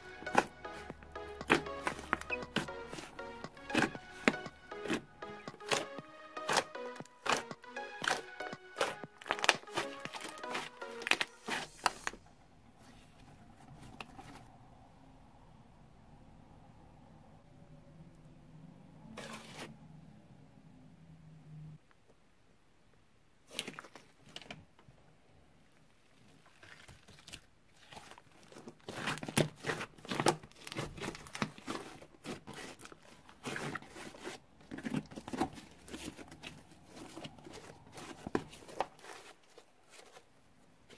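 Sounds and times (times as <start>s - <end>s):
slime squeezed with sticky pops: 1.4s - 12.1s.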